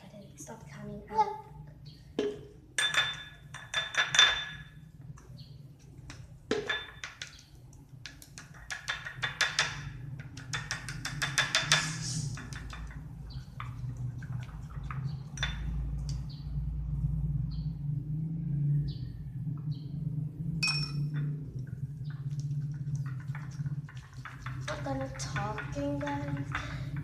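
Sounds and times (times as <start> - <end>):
bowl ringing: 20.6 - 21.4.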